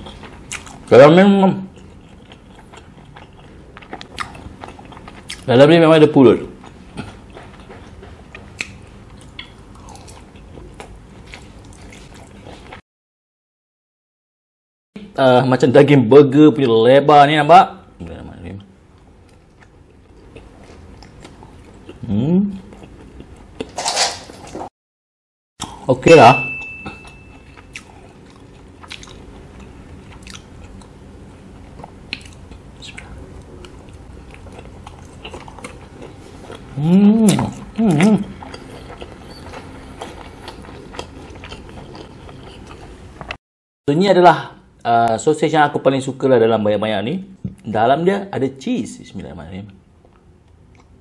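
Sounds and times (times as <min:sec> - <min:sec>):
chewing mouth clicks and smacks: 0:01.8 - 0:05.5, 0:06.6 - 0:10.2, 0:27.5 - 0:30.9, 0:31.6 - 0:36.7, 0:37.3 - 0:43.4
steady low hum: 0:25.6 - 0:43.4.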